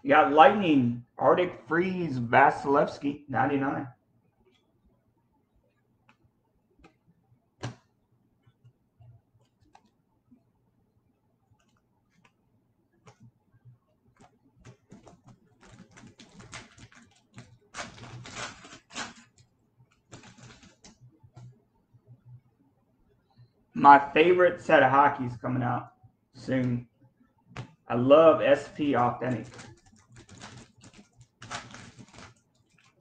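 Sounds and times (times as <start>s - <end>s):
cards clicking: 14.2s - 19.4s, 20.1s - 21.5s, 28.8s - 33.0s
foil wrapper crinkling and tearing: 15.0s - 19.4s, 20.1s - 20.9s, 29.0s - 33.0s.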